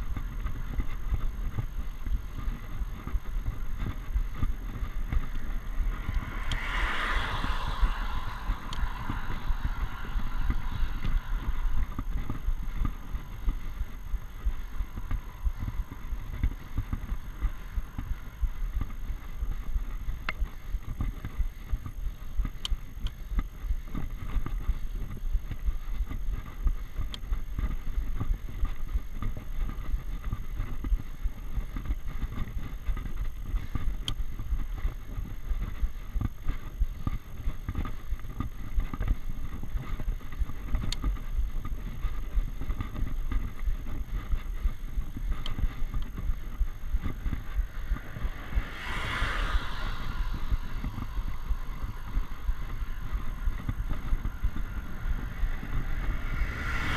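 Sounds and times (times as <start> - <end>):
faint ticks: 0.0 - 56.9
wind and road rumble: 0.0 - 56.9.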